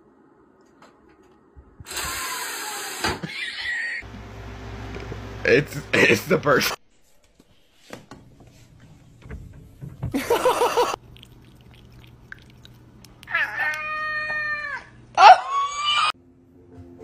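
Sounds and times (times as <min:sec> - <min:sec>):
cat meowing: 0:13.2 - 0:16.1.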